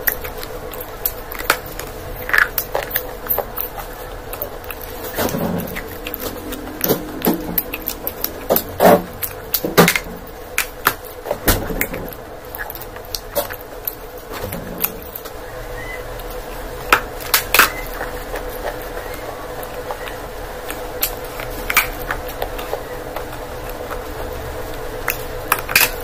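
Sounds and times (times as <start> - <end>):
chewing and biting food: 0.0 - 8.4
faint steady hum: 0.0 - 26.0.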